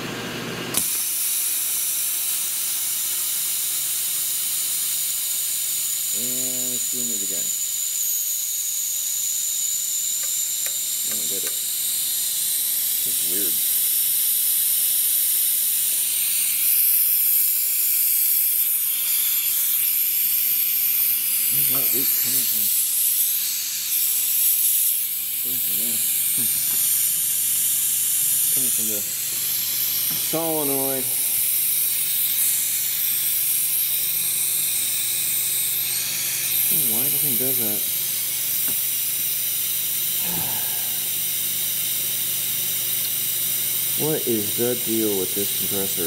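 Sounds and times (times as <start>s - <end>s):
air compressor motor: 0.0s - 46.0s
air hissing out: 10.2s - 42.1s, 42.9s - 46.0s.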